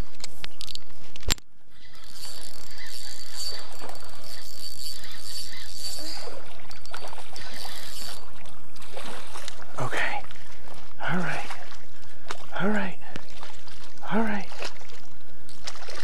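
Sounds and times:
thin high whine: 1.6 - 8.5
fishing reel gears whirring: 1.7 - 8.5.

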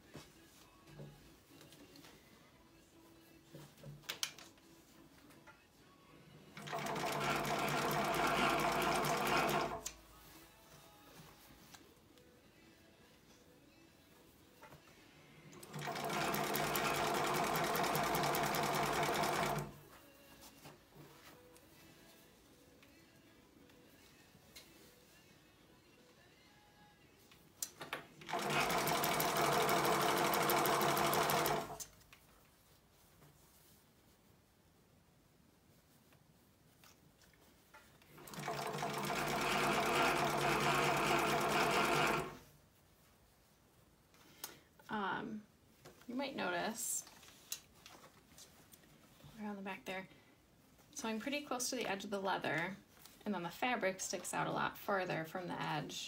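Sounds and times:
sewing machine running: 6.6 - 9.9, 15.6 - 19.7, 28.3 - 31.8, 38.2 - 42.4.

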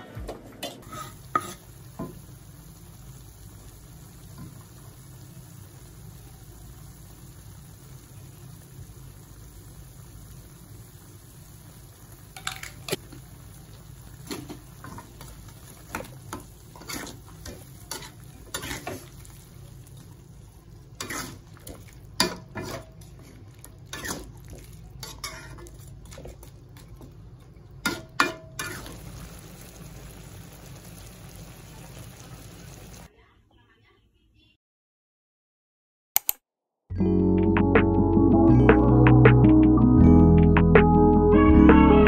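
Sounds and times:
metal spatula scraping a wok: 0.8 - 1.8, 15.9 - 19.3, 21.0 - 24.3, 25.0 - 26.4, 27.8 - 29.0.

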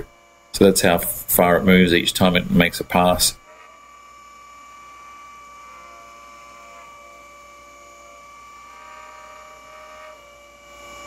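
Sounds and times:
milling machine spindle whine: 0.0 - 11.0.

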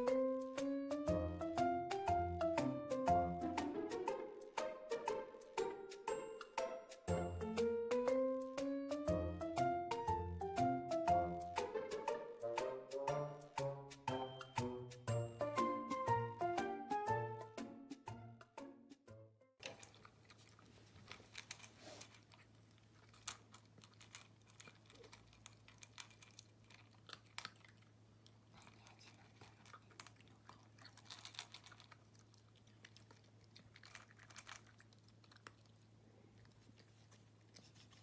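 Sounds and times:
puppy crunching dry kibble: 19.6 - 38.0.

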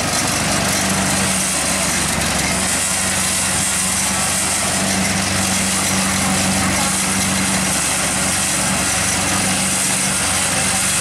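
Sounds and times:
combine harvester engine running: 0.0 - 11.0.

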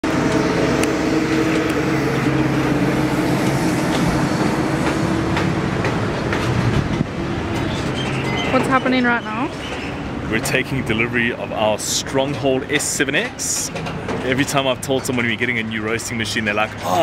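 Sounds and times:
trailer clanking and rattling: 0.0 - 17.0
vehicle engine drone: 0.0 - 17.0.

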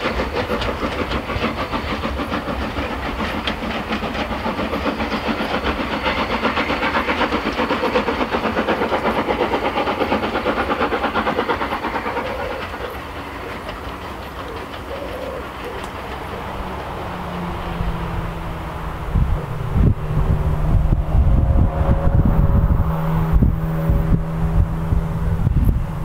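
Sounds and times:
steam locomotive exhaust beating: 0.0 - 26.0.

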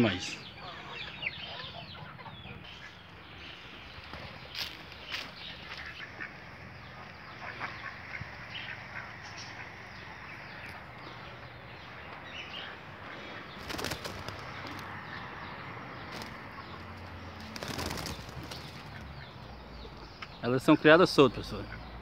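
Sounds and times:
doves flapping wings: 13.2 - 15.1, 16.0 - 19.2.

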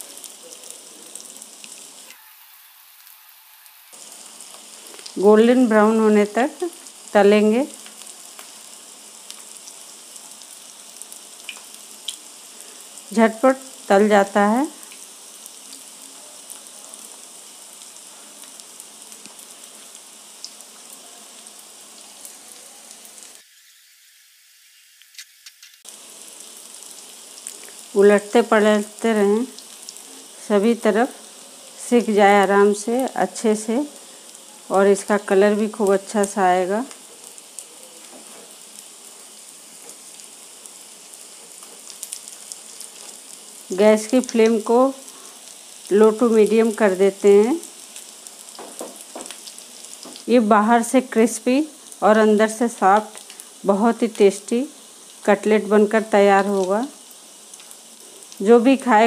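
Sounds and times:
oil popping and crackling: 0.0 - 5.2, 7.7 - 13.9, 14.7 - 23.5, 24.9 - 28.0, 35.6 - 50.3, 52.9 - 53.6, 56.4 - 59.0
cutlets sizzling in hot oil: 0.0 - 59.0.

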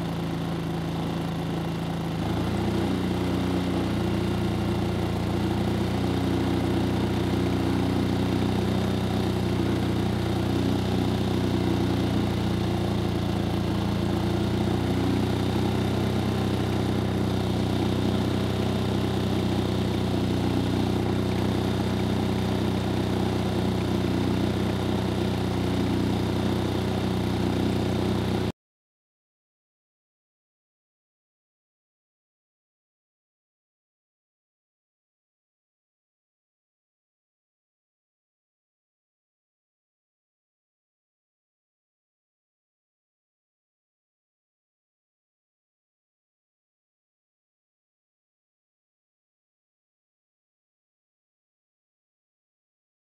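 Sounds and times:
generator engine running: 0.0 - 28.5.

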